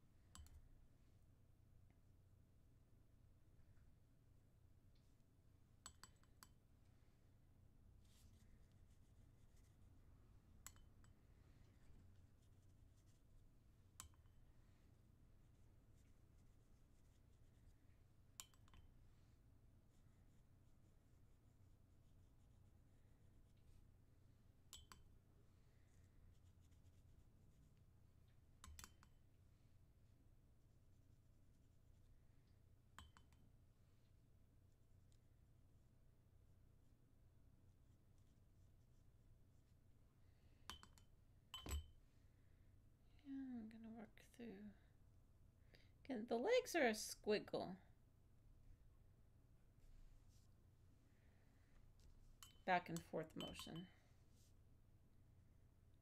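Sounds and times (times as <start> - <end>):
pencil tapping glass jar: 40.6 - 42.0, 52.4 - 54.0.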